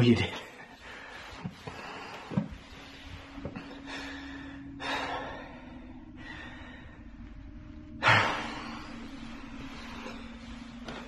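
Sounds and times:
faint steady hum: 0.0s - 11.0s
man breathing heavily: 0.4s - 11.0s.

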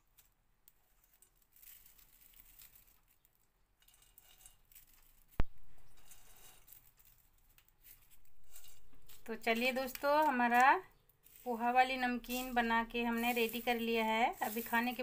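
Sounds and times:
dry snack rustling on paper: 0.2s - 15.0s.

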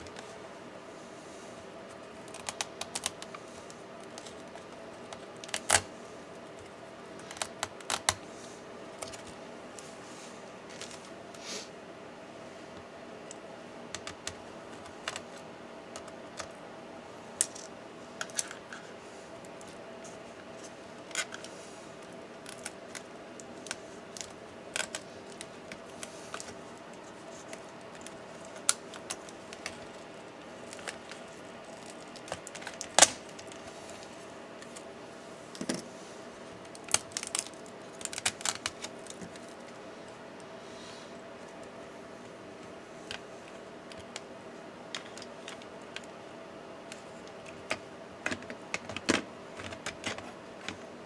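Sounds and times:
steady low hum: 0.0s - 51.0s
small clicks taps and scrapes: 13.9s - 16.6s, 46.9s - 50.8s.

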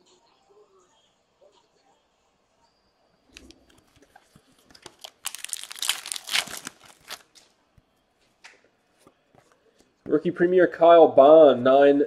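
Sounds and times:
card pack wrapper crinkling: 3.4s - 7.5s.

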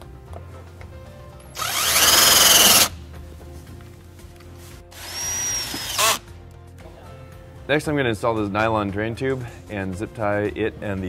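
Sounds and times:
cordless drill driving screw: 1.6s - 2.9s, 4.9s - 6.2s.

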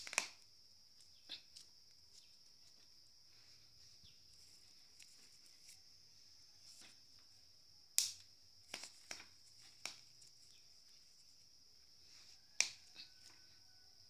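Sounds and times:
charcoal crackling snaps: 0.0s - 2.3s, 7.9s - 10.6s, 12.4s - 13.5s.

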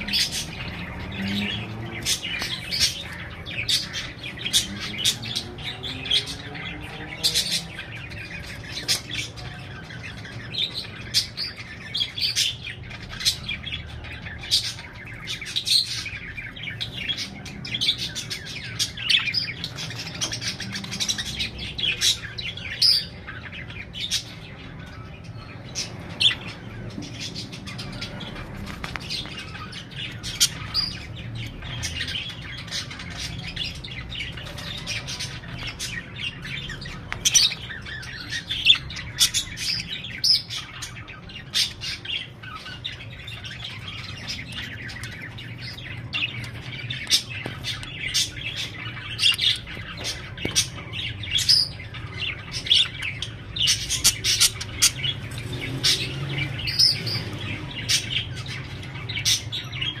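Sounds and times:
budgerigars chirping: 0.0s - 60.0s.

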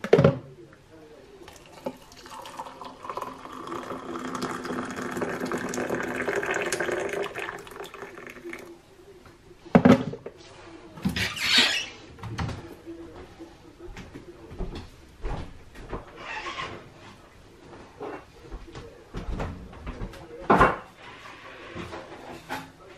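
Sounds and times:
hot water pouring into a mug: 1.4s - 8.7s.

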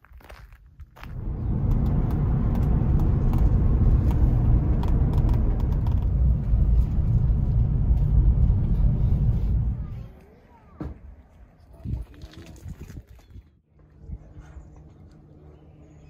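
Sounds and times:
car cabin road and engine rumble: 1.0s - 10.2s.

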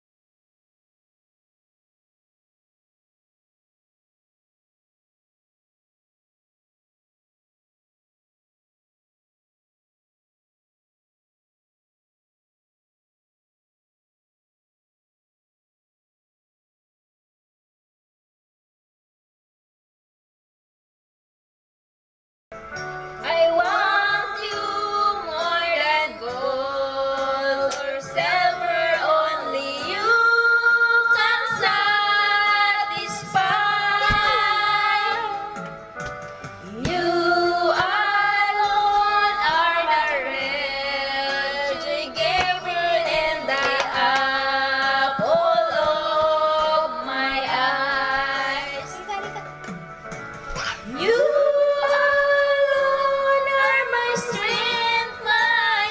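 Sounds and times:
karaoke backing track: 22.6s - 55.9s
women singing together: 23.2s - 35.8s, 36.7s - 48.9s, 50.9s - 55.9s.

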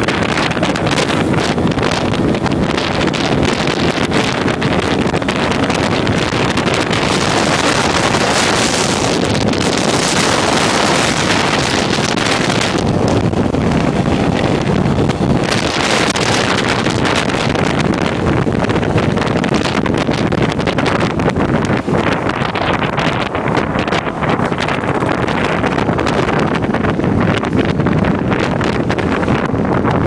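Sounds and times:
motorcycle engine running: 0.0s - 30.0s
wind buffeting microphone: 0.0s - 30.0s.

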